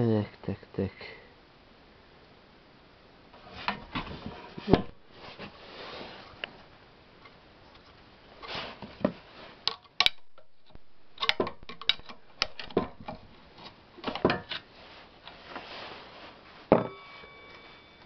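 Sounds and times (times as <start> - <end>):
metal clicks knocks and scrapes: 9.7 - 13.3.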